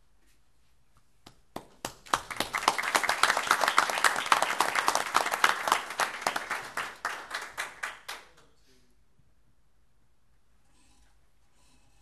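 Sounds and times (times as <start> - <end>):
audience applauding: 1.6 - 8.4.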